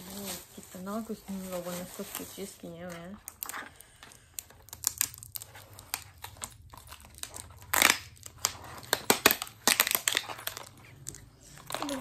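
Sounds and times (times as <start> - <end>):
plastic packaging crinkling: 0.0 - 12.0
plastic parts clicking and knocking: 2.9 - 12.0.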